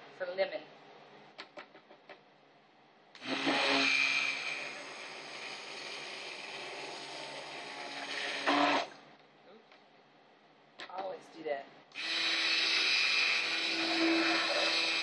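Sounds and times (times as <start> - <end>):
stick blender motor running: 3.2 - 9.0, 11.9 - 15.0.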